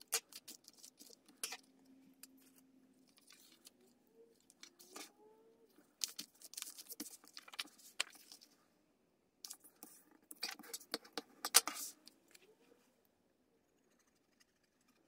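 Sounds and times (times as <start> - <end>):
paper rustling and crinkling: 6.0 - 8.6.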